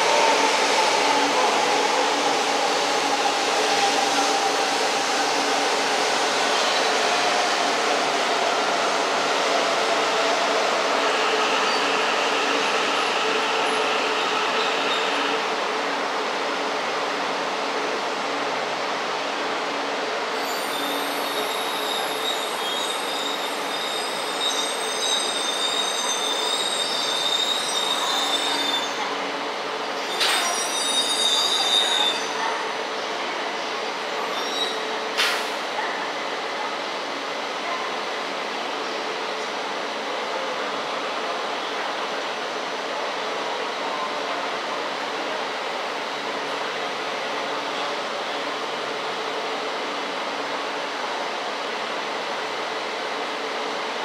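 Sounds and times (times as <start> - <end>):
train brakes squealing: 11.0 - 15.4, 20.4 - 29.0, 30.0 - 32.6, 34.2 - 35.6.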